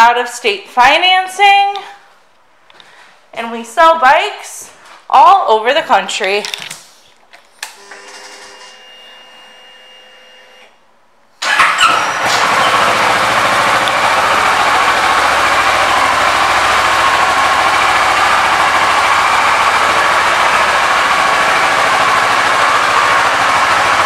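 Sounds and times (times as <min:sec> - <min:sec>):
motorcycle engine starting and idling: 0:11.4 - 0:24.0.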